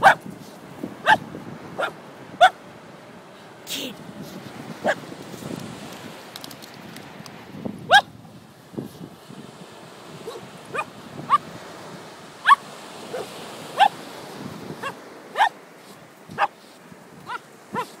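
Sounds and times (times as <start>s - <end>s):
small dogs yipping: 0.0s - 0.2s, 1.0s - 1.2s, 1.8s - 2.6s, 7.9s - 8.1s, 10.2s - 11.4s, 12.4s - 14.0s, 14.8s - 15.6s, 16.3s - 16.6s, 17.3s - 18.0s.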